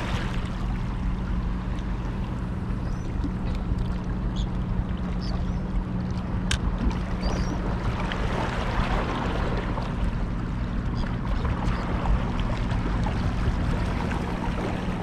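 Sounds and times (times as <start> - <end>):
water lapping against rocks: 0.0 - 2.2
steady low hum: 0.0 - 15.0.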